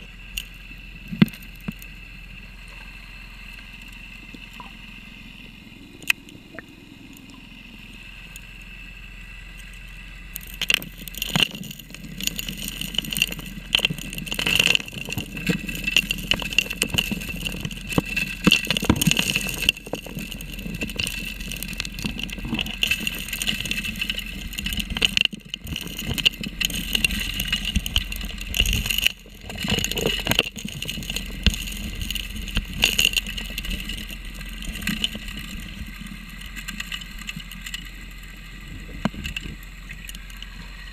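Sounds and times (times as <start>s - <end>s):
underwater dredge drone: 0.0s - 40.9s
gravel clattering into suction nozzle: 10.4s - 38.0s.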